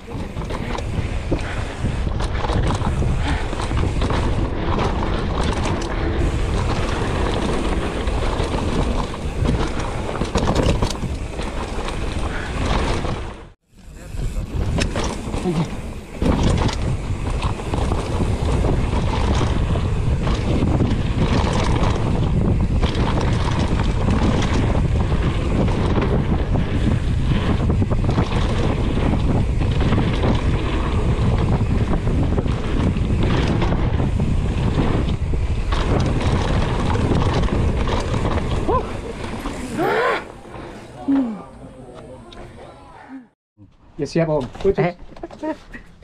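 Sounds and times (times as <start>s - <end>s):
bike knocks and rattles: 0.0s - 13.6s, 14.3s - 39.8s
wind buffeting microphone: 0.0s - 41.0s
bike ride rumble: 0.0s - 46.0s.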